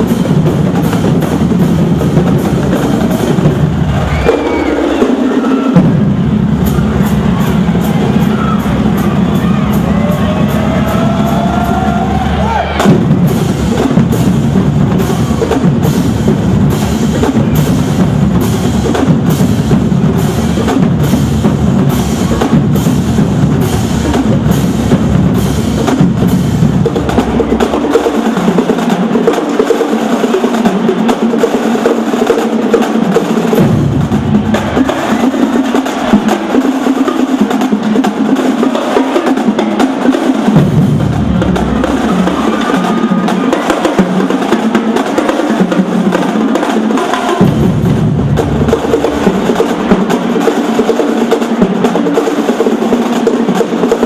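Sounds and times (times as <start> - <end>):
bass drums: 0.0 - 29.6, 33.0 - 36.6, 40.4 - 45.0, 47.1 - 50.8
snare drums: 0.0 - 54.0
tenor drums: 0.0 - 54.0.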